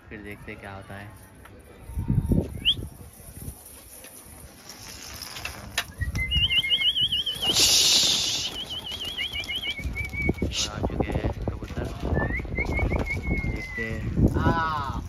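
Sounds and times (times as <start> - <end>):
pigeon wings flapping: 4.6 - 13.8.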